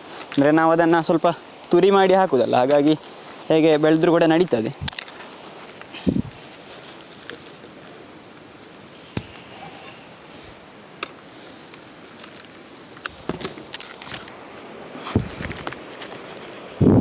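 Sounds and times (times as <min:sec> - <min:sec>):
insects chirring: 0:00.0 - 0:17.0
gourds clicking in basket: 0:02.5 - 0:07.9.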